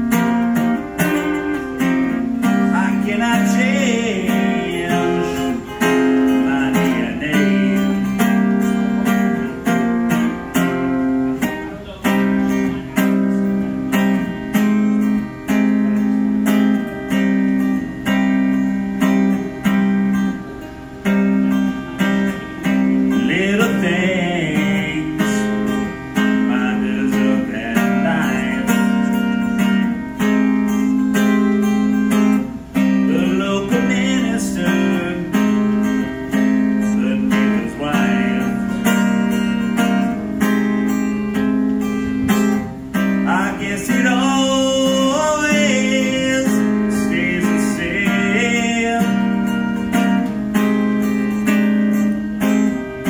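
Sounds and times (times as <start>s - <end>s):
man singing: 0.0s - 16.0s, 21.6s - 29.8s, 32.8s - 40.0s, 43.0s - 50.2s
acoustic guitar strumming: 0.0s - 53.0s.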